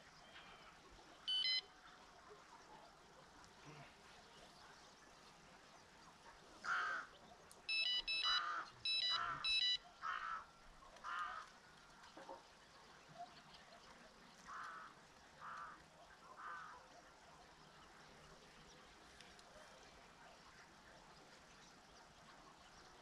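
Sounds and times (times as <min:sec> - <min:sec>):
short high beeps: 0:01.3 - 0:01.6, 0:07.7 - 0:09.8
harsh crow-like bird calls: 0:06.6 - 0:07.1, 0:08.2 - 0:11.6, 0:14.5 - 0:15.8, 0:16.4 - 0:16.8.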